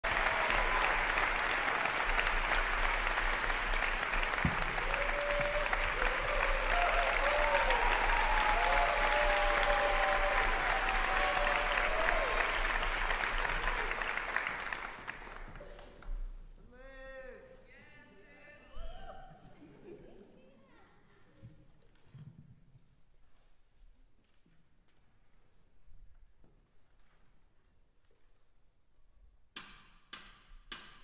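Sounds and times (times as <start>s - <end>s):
people cheering: 0.0s - 15.8s
audience applauding: 0.0s - 16.1s.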